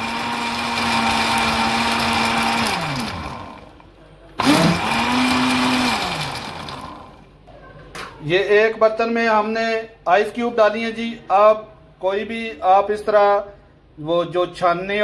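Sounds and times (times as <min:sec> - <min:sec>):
electric blender motor: 0:00.0 - 0:03.8, 0:04.4 - 0:07.3.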